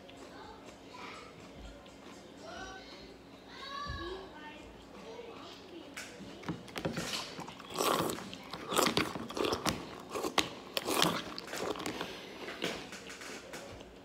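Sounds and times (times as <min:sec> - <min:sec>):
chewing cereal crunches: 0:06.6 - 0:13.4.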